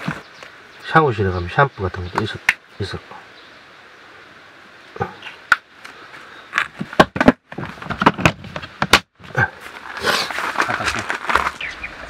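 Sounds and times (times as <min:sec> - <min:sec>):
rustling: 0:09.4 - 0:12.0.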